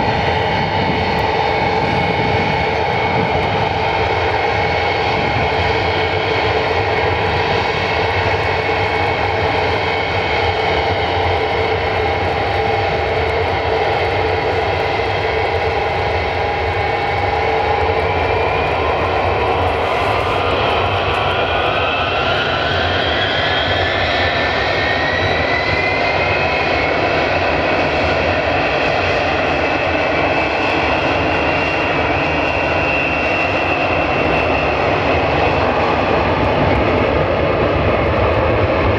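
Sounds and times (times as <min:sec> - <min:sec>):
rising engine whine: 0:00.0 - 0:27.1
jet engines running: 0:00.0 - 0:38.9.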